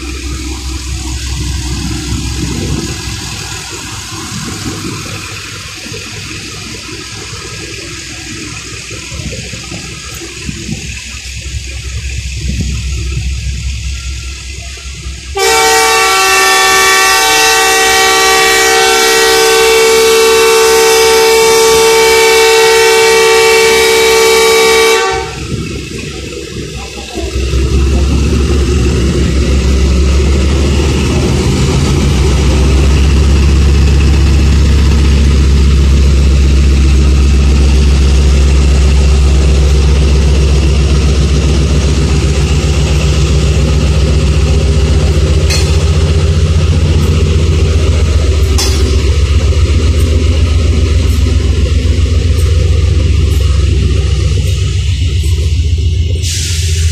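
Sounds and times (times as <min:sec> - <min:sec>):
diesel engine running: 0:00.0 - 0:56.9
locomotive horn blast: 0:15.2 - 0:25.7.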